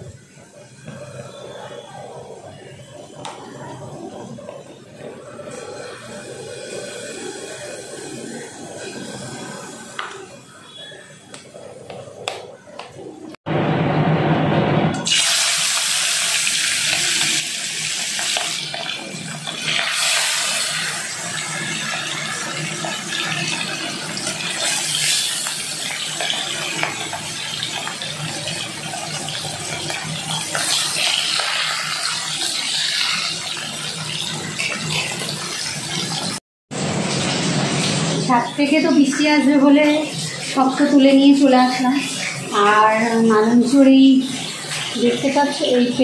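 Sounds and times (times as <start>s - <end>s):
fish sizzling in hot oil: 15.0s - 36.4s, 37.0s - 46.0s.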